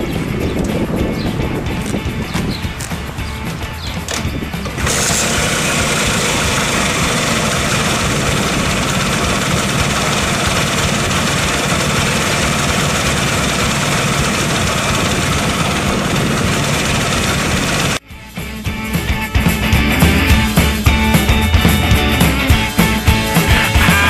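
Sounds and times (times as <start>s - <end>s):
scooter engine kick-started idling: 0.3s - 18.0s.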